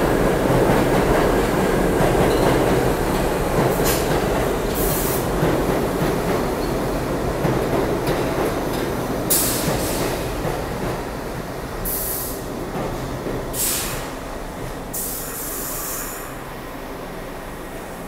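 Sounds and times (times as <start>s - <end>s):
subway train rumbling: 0.0s - 18.0s.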